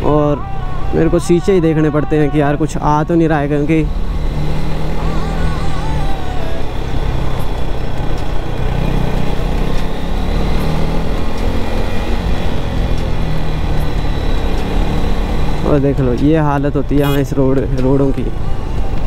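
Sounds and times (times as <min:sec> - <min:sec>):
wind and road noise: 0:00.0 - 0:19.0
motorcycle engine running: 0:17.0 - 0:17.2.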